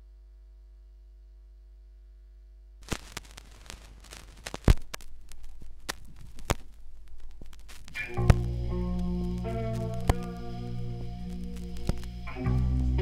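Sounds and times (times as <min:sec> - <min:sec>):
low hum: 0:00.0 - 0:13.0
vinyl surface crackle and pops: 0:02.8 - 0:13.0.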